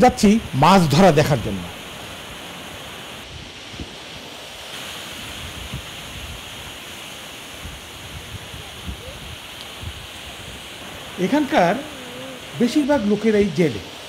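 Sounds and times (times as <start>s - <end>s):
surf washing on shore: 0.1s - 14.0s
wind on microphone: 2.8s - 13.1s.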